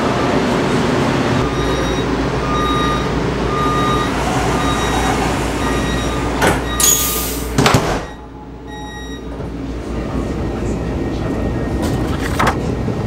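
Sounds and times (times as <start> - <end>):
door warning beeps: 1.4 - 9.4
sliding door thudding shut: 4.2 - 8.1.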